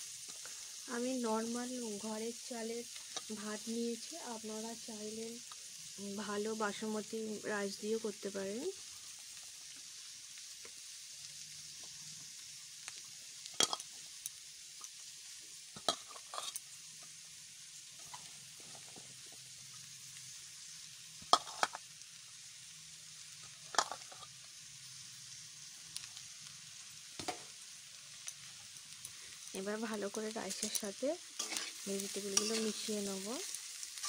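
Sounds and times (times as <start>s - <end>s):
food sizzling in a pan: 0.0s - 34.0s
metal spatula scraping a pan: 15.8s - 16.6s, 30.4s - 33.0s.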